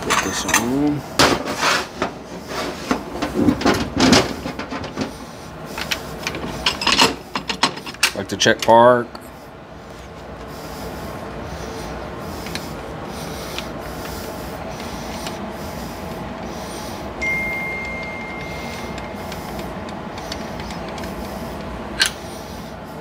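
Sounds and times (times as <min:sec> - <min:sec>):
shop background noise: 0:00.0 - 0:23.0
high ringing tone: 0:17.2 - 0:19.3.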